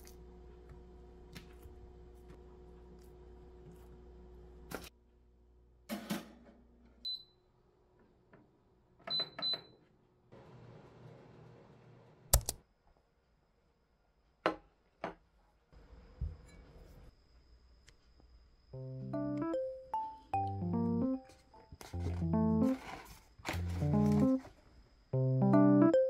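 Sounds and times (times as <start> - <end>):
oven control panel beeps: 7.0 - 7.4.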